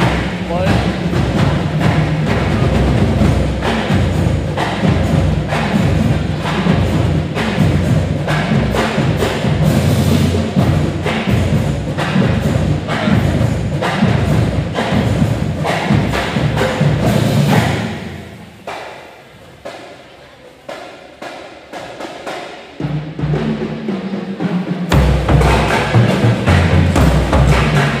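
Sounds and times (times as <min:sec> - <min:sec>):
loud drum hits: 0:00.0 - 0:18.8, 0:24.8 - 0:28.0
pep band playing: 0:00.0 - 0:28.0.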